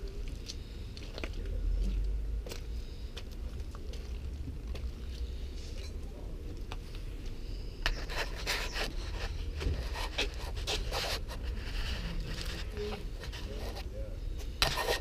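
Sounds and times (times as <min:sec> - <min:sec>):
close scraping and rustling: 0:06.8 - 0:15.0.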